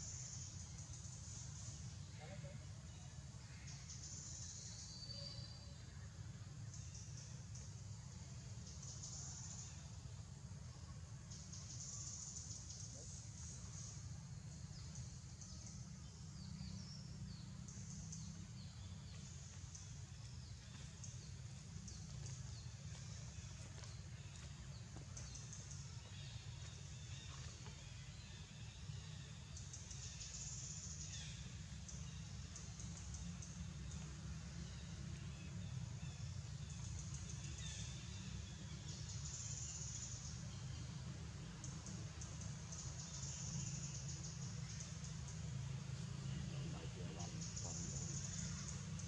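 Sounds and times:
insects buzzing: 0.0 - 49.0
birds chirping: 41.6 - 49.0.

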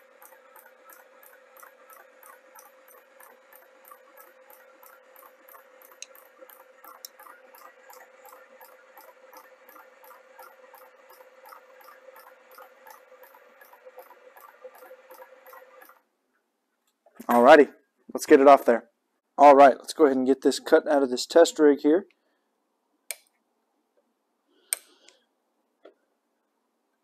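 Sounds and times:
reciprocating saw motor hum: 0.0 - 16.0
rhythmic mechanical clicking: 0.0 - 16.0.

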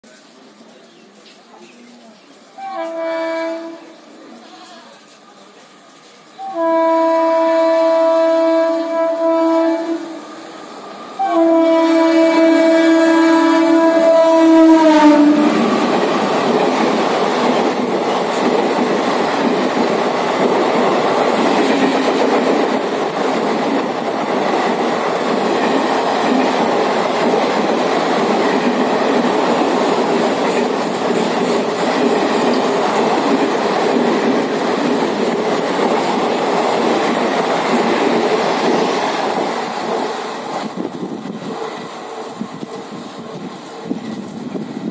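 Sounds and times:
locomotive horn: 2.6 - 4.0, 6.4 - 10.4, 11.2 - 15.9
train coaches rushing past: 5.0 - 44.9.

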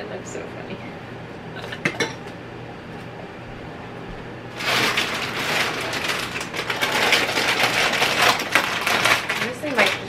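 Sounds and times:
plastic bag crinkling: 4.6 - 10.0.

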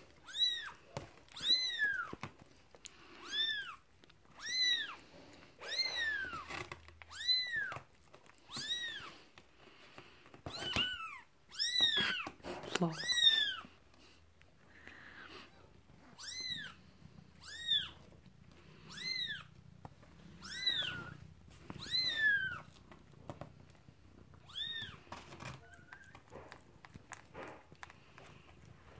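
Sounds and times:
kitten squealing: 4.4 - 5.0, 16.2 - 16.8, 17.4 - 18.0, 18.9 - 19.5, 20.4 - 21.2, 21.8 - 22.7, 24.4 - 26.3.

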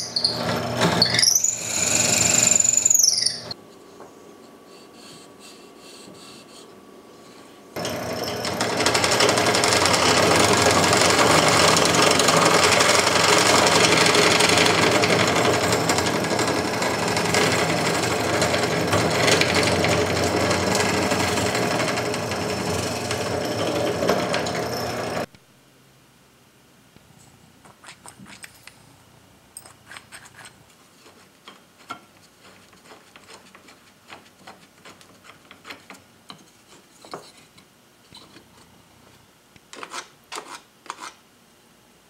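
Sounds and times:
drill press boring into wood: 0.0 - 3.6, 7.8 - 25.3.

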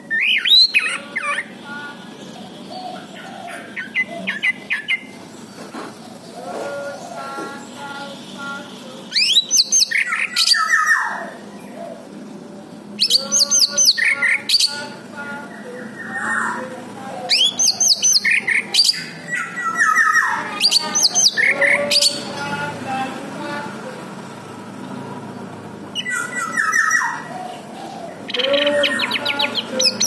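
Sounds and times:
thrush whistled song: 9.1 - 11.1.

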